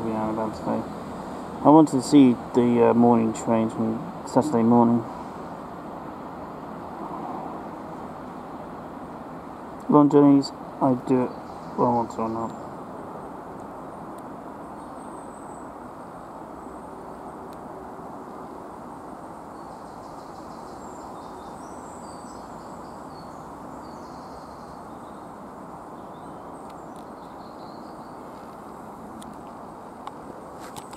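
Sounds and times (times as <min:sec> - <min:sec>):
bird or insect chirps: 0:10.9 - 0:12.8, 0:14.6 - 0:17.4, 0:19.4 - 0:28.4.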